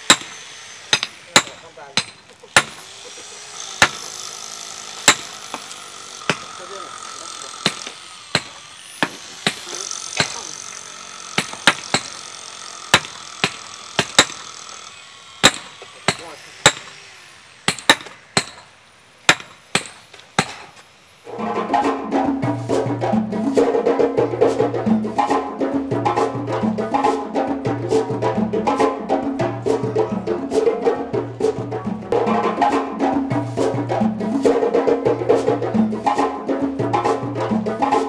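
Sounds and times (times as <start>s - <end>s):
sledgehammers striking metal stakes: 0.0s - 2.9s, 3.6s - 17.0s, 17.6s - 20.9s
music with drums and wood blocks: 21.3s - 38.0s.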